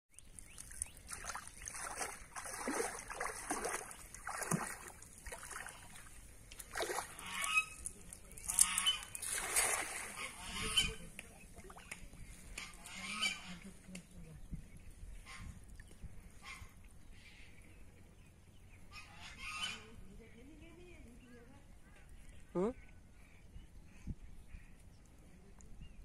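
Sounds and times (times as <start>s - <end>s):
water splashing around legs: 0.2s - 12.7s
waterfowl honking: 6.9s - 7.9s, 8.5s - 11.1s, 12.5s - 13.7s, 16.4s - 17.4s, 18.9s - 20.0s.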